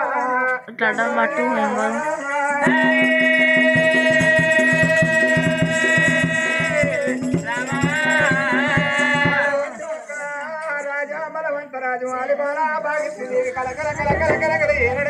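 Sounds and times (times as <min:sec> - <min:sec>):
jingle of small percussion: 0:00.4 - 0:11.1
steady drum beats: 0:02.6 - 0:09.6, 0:13.4 - 0:15.0.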